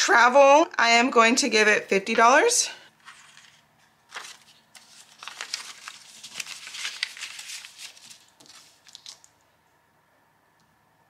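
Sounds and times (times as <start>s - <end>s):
paper rustling and crinkling: 3.0s - 9.4s.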